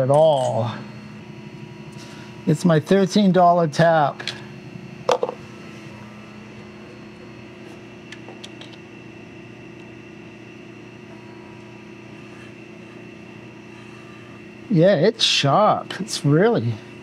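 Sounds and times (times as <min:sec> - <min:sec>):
electrical machine hum: 0:00.0 - 0:17.0.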